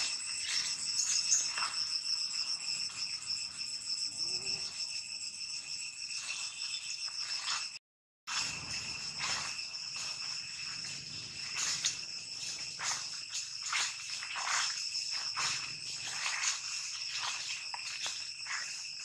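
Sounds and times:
insects buzzing chorus: 0.0 - 19.0
dry leaves rustling: 8.3 - 19.0.

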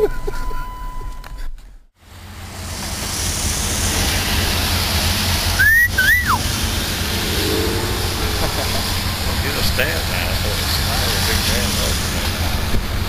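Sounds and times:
short two-part whistle: 5.6 - 6.4.

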